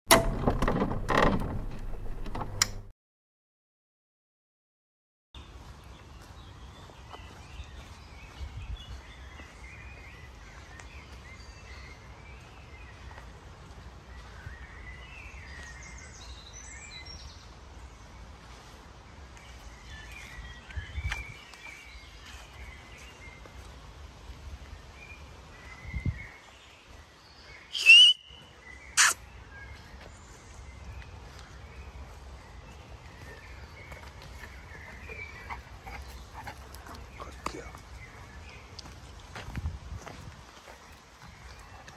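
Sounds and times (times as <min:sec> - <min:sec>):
songbirds chirping and singing: 0:05.4 - 0:41.9
loud high whistles: 0:27.7 - 0:28.3.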